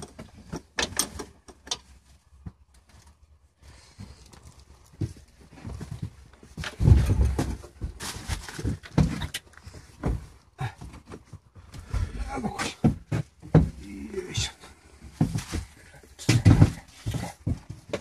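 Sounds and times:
metallic knocks and clatter of tools: 0.0s - 1.9s.

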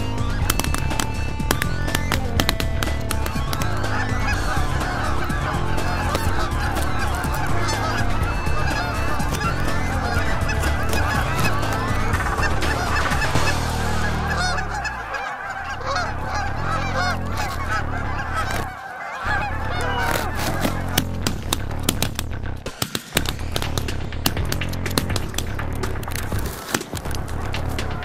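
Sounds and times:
low rumble: 0.0s - 18.7s, 19.3s - 22.7s
geese honking: 0.0s - 28.0s.

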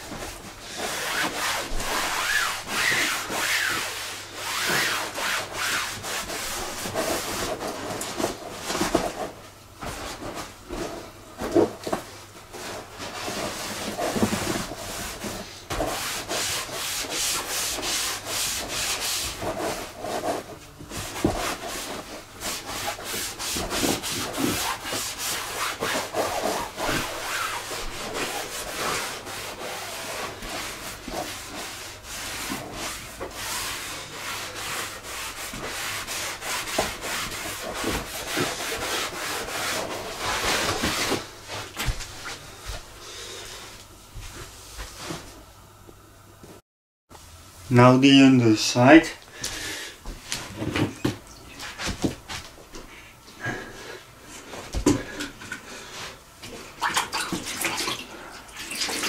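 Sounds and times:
cloth rubbing inflatable boat: 0.0s - 42.5s.

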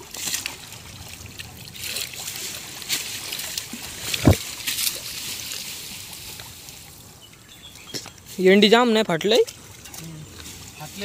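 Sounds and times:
water streaming off net: 0.0s - 7.0s
water splashing and sloshing: 0.0s - 11.0s.

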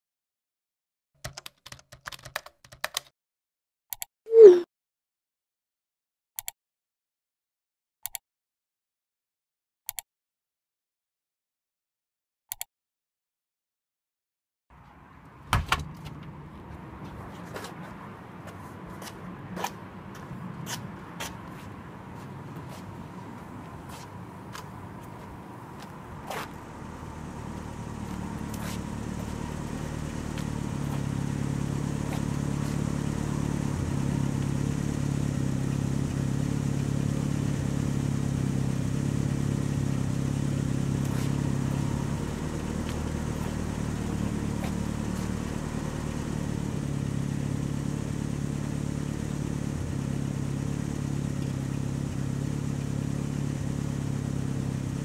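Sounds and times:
car engine humming: 14.8s - 55.0s.

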